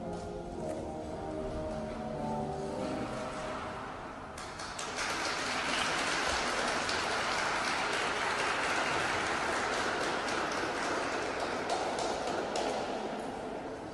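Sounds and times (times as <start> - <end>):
skating music: 0.0 - 13.9
audience applauding: 4.4 - 13.2.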